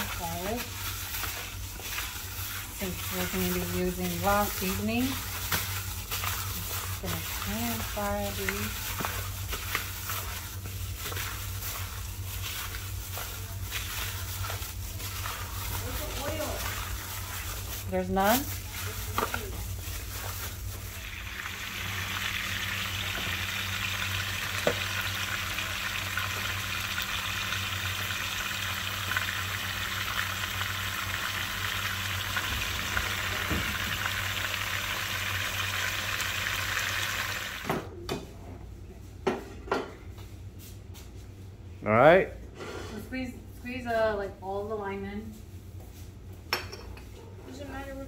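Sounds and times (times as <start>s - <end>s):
fish sizzling in hot oil: 0.0s - 19.3s, 19.9s - 37.6s.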